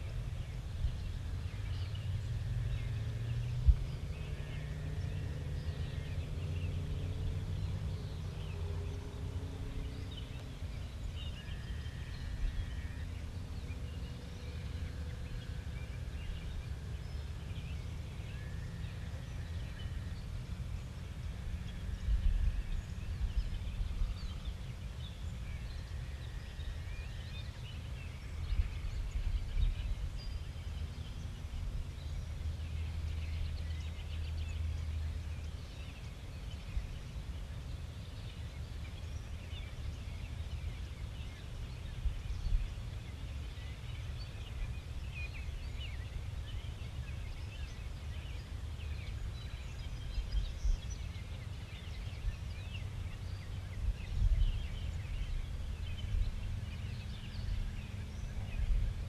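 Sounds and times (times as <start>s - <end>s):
small birds chirping: 0.0s - 59.0s
steady low rumble: 0.0s - 59.0s.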